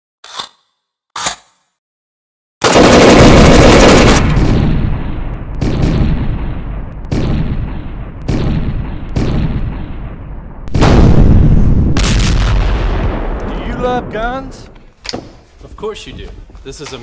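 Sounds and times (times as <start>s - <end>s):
gunshots echoing: 2.6s - 14.9s.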